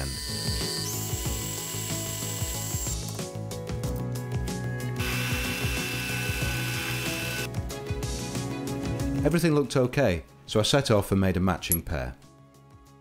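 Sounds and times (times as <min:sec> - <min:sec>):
lathe whining: 0:05.0 - 0:07.5.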